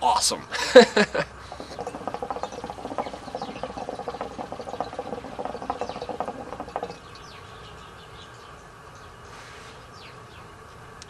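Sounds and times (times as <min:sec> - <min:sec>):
water bubbling in hookah: 0:01.3 - 0:08.3.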